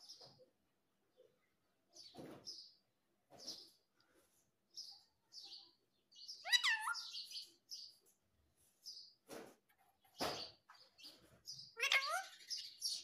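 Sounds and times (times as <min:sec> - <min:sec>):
parakeet chirping: 0:06.1 - 0:07.9, 0:11.0 - 0:13.0.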